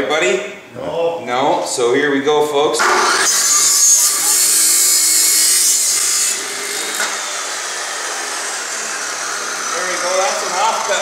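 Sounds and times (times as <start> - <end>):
chop saw grinding through steel: 2.8 - 11.0.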